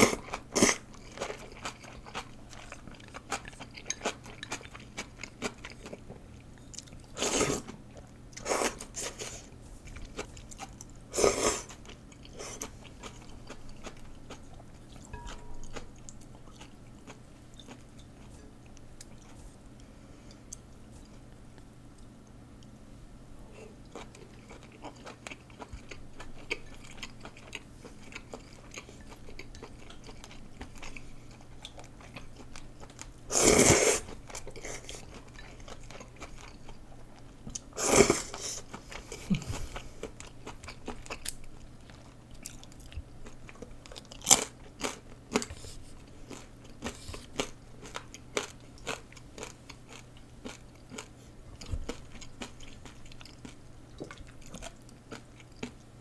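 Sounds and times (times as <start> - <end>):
person chewing noodles: 0.0 - 19.6, 23.6 - 56.0
loud slurps: 33.3 - 34.0.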